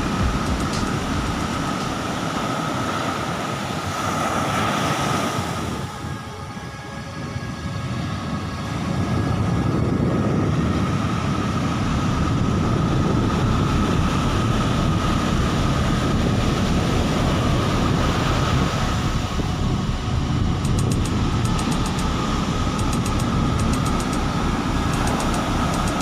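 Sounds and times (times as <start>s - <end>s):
surf breaking on beach: 0.0s - 6.2s
wind buffeting microphone: 0.0s - 26.0s.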